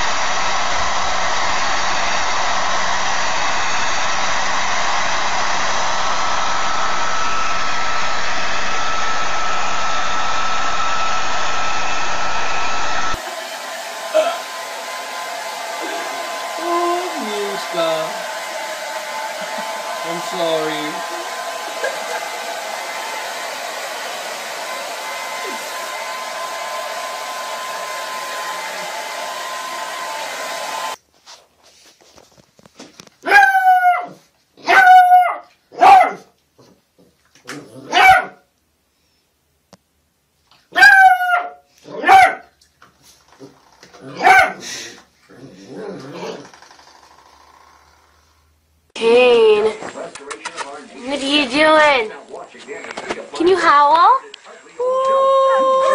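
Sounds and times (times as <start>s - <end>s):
hair dryer blowing: 0.0s - 31.0s, 51.0s - 52.1s
small dog barking: 33.2s - 36.3s, 37.8s - 38.4s, 40.7s - 42.6s, 44.1s - 44.6s.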